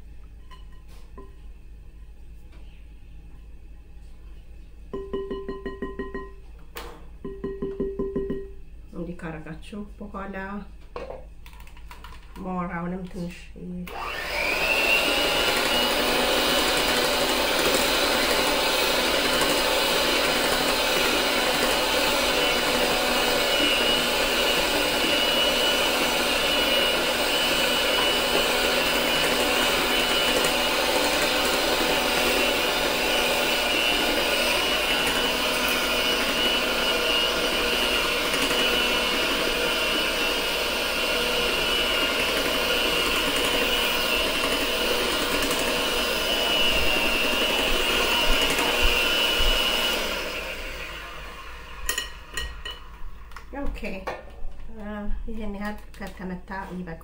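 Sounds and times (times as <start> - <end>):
electric hand mixer whirring: 13.8 - 54.0.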